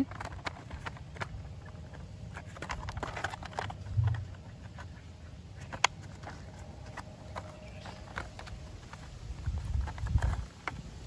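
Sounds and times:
plastic clicks and scrapes: 0.0s - 11.0s
dull low thump: 3.9s - 4.3s.

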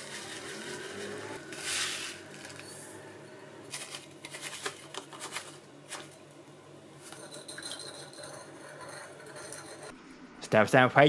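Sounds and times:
seeds pouring hiss: 0.0s - 2.6s.

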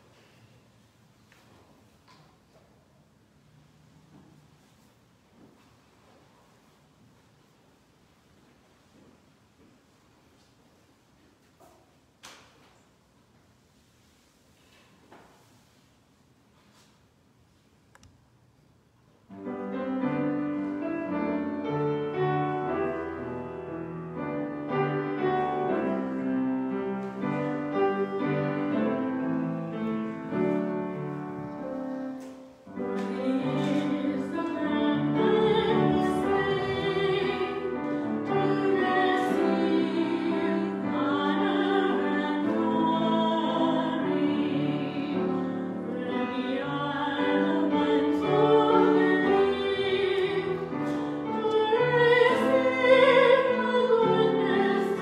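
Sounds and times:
piano playing: 19.3s - 55.0s.

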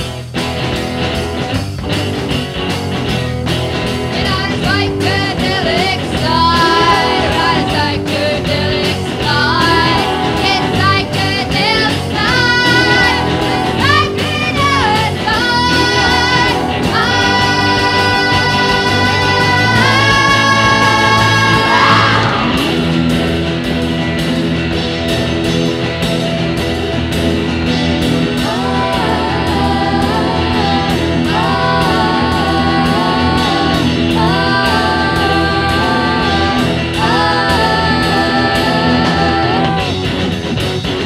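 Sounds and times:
drum beat: 0.0s - 41.0s
electric guitar: 0.0s - 41.0s
person singing: 4.1s - 22.6s, 28.4s - 40.1s.

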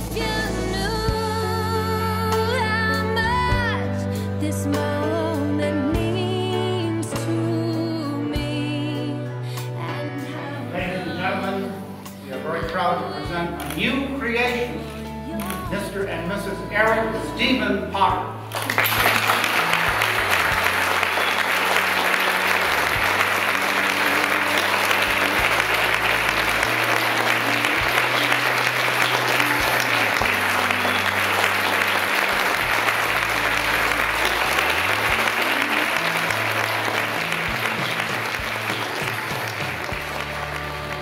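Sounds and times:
music with low held notes: 9.8s - 41.0s
crowd applauding: 18.4s - 41.0s.

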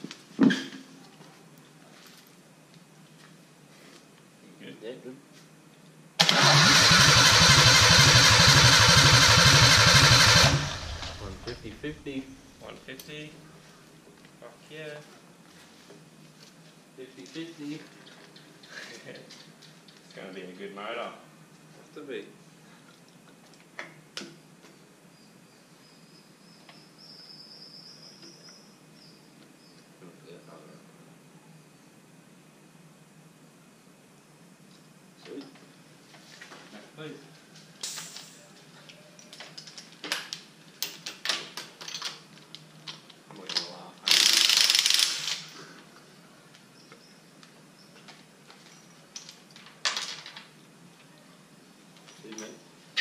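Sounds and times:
ratchet wrench turning: 44.1s - 45.6s.

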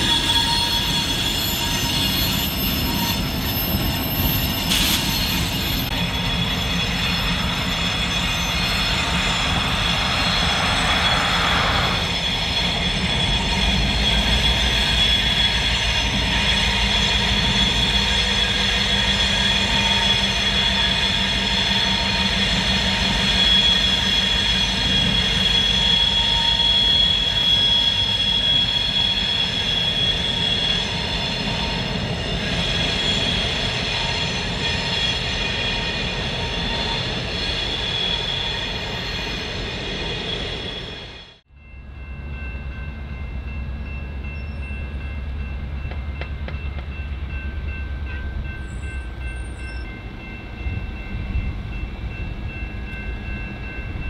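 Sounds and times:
high-pitched wheel squeal: 0.0s - 41.4s
train cars rolling: 0.0s - 41.4s.

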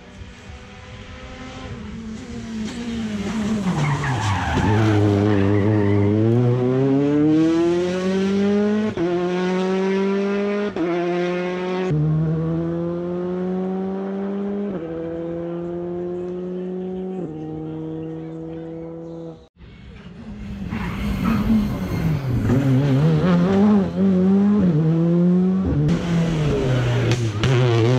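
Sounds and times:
rally car engine: 0.0s - 27.9s
tyres skidding: 2.0s - 8.8s, 19.8s - 27.9s.

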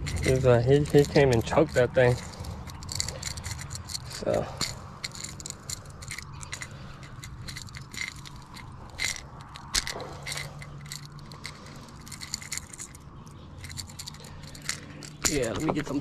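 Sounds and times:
lure hooks clicking and rattling: 0.0s - 16.0s.

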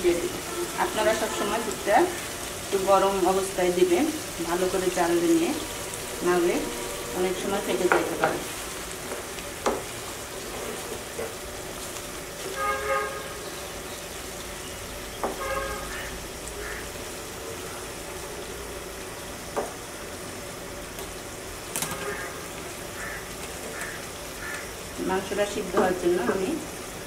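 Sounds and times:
steady-pitched tones: 3.7s - 8.8s
spatula knocking on pan: 7.8s - 8.5s, 9.6s - 9.9s.

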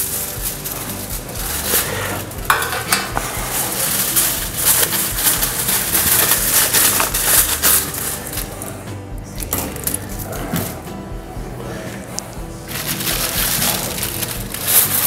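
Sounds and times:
aluminium foil crinkling: 0.0s - 8.8s, 12.7s - 15.0s.

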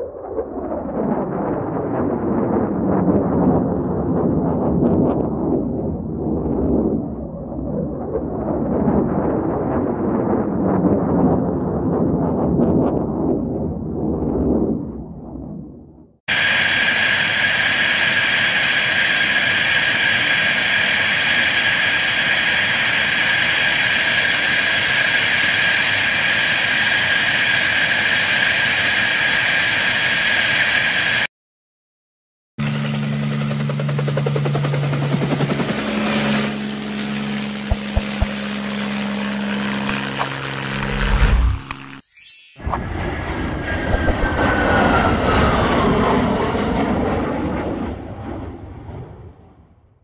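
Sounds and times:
jet engine high whine: 16.3s - 31.3s, 32.6s - 50.0s
low engine drone: 32.6s - 42.0s, 42.6s - 48.4s.

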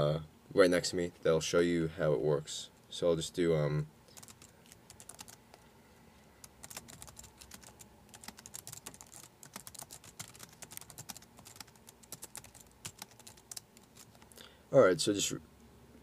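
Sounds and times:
typing on computer keyboard: 4.1s - 5.4s, 6.4s - 14.3s.

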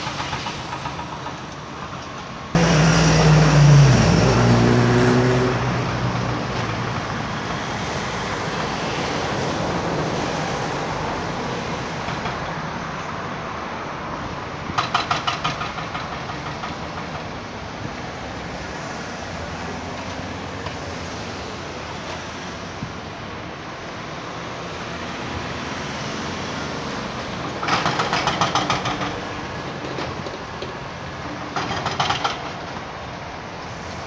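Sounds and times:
background traffic: 0.0s - 34.0s
vehicle engine passing: 2.6s - 7.3s
sharp clicks or rattles: 27.6s - 29.2s, 31.6s - 32.8s.

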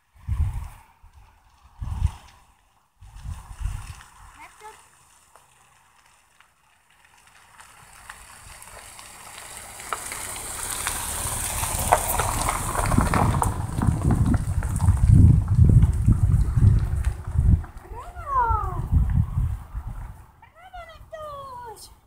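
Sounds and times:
wind on microphone: 0.0s - 4.6s, 11.4s - 21.4s
faint crackles and clicks: 0.6s - 19.2s.

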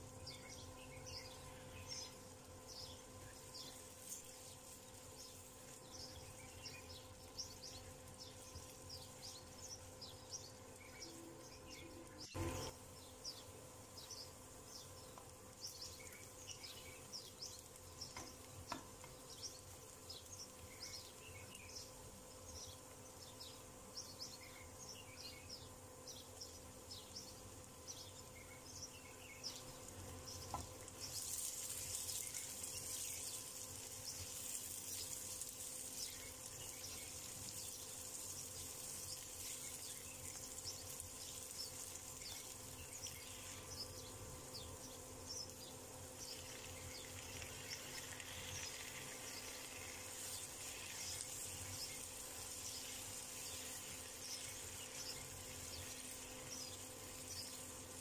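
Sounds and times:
vegetables sizzling in oil: 11.9s - 12.8s, 29.4s - 44.6s, 45.2s - 58.0s.

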